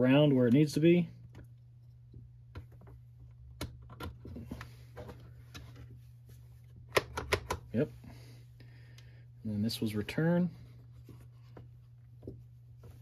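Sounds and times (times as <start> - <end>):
clicks and taps of plastic parts: 1.2 - 5.8, 6.8 - 7.7.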